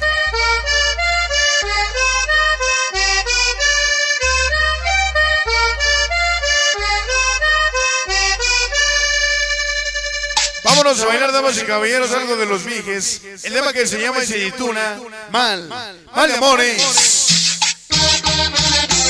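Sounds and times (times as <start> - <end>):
bass line: 0.0 - 10.8, 17.2 - 19.0
accordion melody: 0.0 - 11.6, 16.8 - 19.0.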